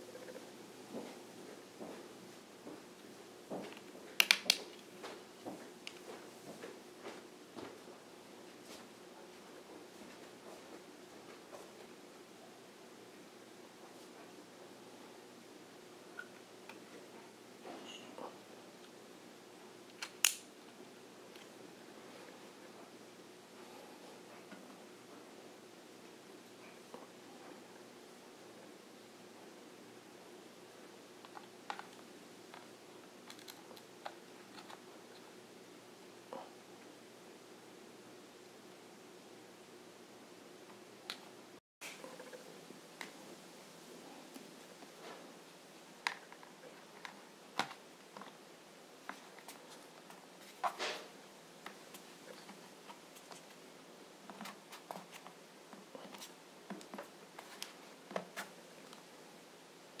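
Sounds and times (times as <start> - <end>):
faint steady hum: 0.0 - 60.0.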